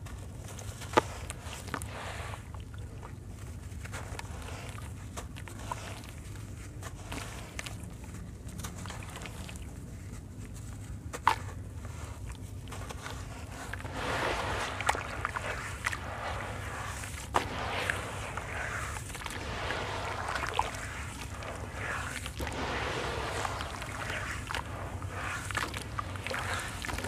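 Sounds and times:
crumbling cement lumps into water: 0.3 - 27.0
steady low hum: 6.1 - 27.0.

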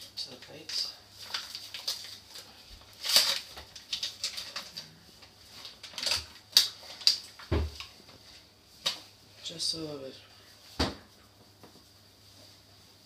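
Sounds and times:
flour bag rustling and crinkling: 0.0 - 9.6.

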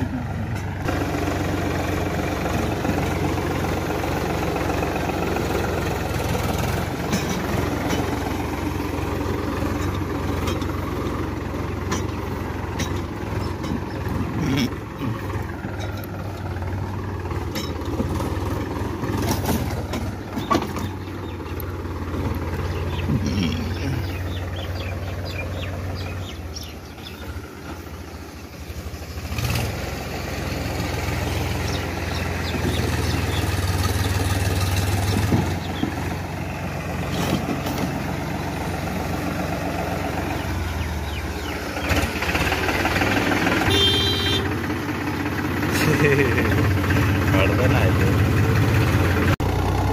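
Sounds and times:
tractor diesel engine running: 0.0 - 49.9.

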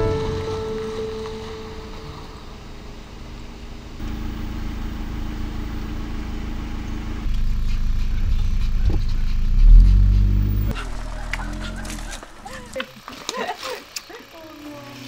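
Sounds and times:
car engine running: 0.0 - 15.0
road noise: 0.0 - 15.0.

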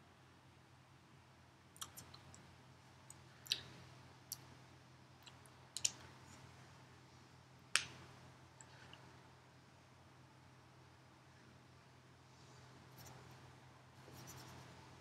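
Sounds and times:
faint room hum: 0.0 - 15.0
mouth clicks: 1.8 - 2.4.

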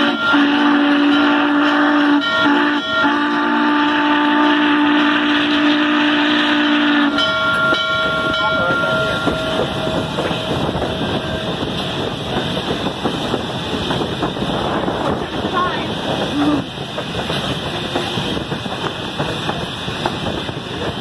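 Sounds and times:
steam whistle blast: 0.0 - 7.2
steam train rumbling on rails: 0.0 - 21.0.

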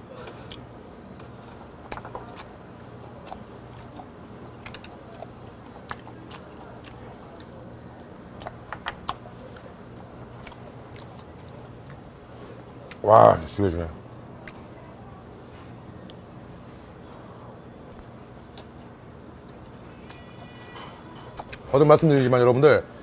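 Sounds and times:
faint low hum: 0.0 - 23.0
person chewing: 0.1 - 13.0, 17.1 - 21.7.

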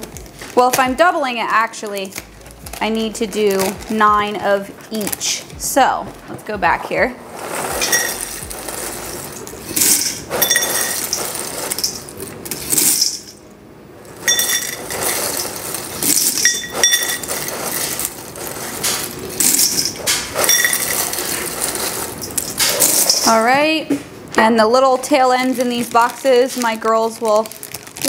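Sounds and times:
cereal rattling into metal pot: 7.4 - 13.4, 14.2 - 23.4, 25.0 - 28.0.

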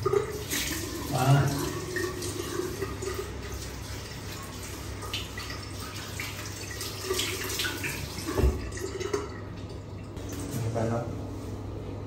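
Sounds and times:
tap running into sink: 7.1 - 9.3.

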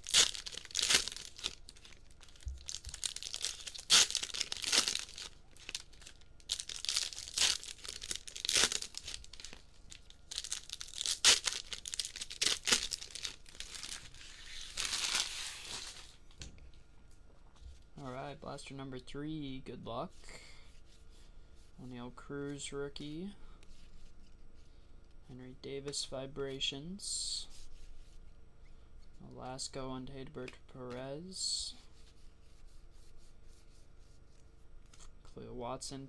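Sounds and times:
foil wrappers tearing and crinkling: 0.0 - 16.2.

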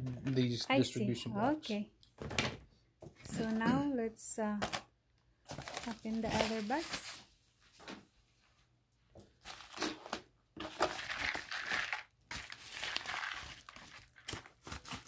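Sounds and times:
paper mailer crinkling: 5.5 - 7.2.

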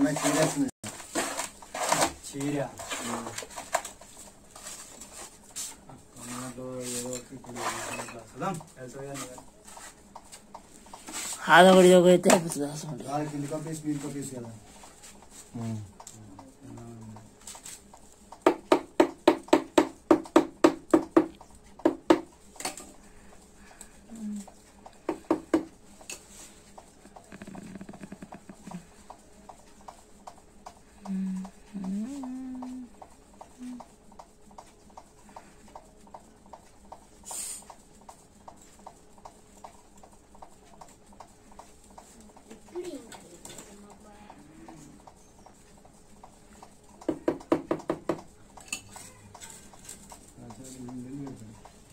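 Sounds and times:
short scrape: 6.2 - 8.1.

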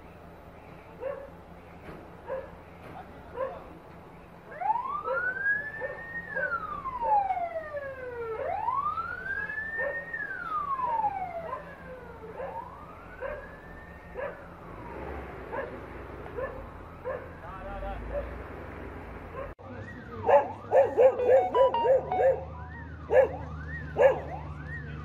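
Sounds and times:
dog barking: 1.0 - 1.4, 2.2 - 2.6, 3.3 - 3.7, 5.1 - 6.6, 9.8 - 10.1, 11.4 - 11.7, 12.4 - 12.6, 13.2 - 13.5, 14.2 - 14.4, 15.5 - 15.8, 16.4 - 17.4, 18.0 - 18.4, 19.3 - 19.6, 20.2 - 24.4
emergency siren wailing: 4.4 - 15.6, 16.4 - 18.0, 19.6 - 25.0.

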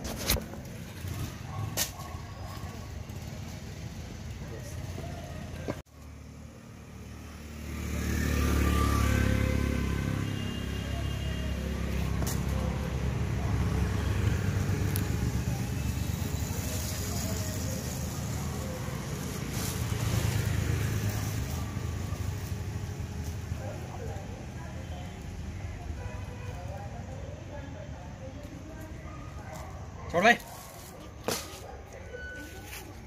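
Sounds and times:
low traffic rumble: 0.0 - 33.0
vehicle engine passing: 2.9 - 24.8.

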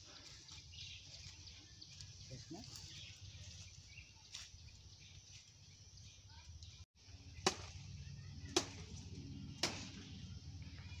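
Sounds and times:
low outdoor rumble: 5.4 - 11.0.

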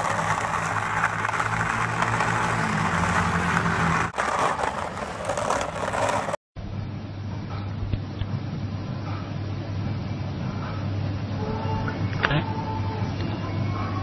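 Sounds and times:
skateboard wheels on asphalt: 0.0 - 6.4
low hum: 0.0 - 13.9.

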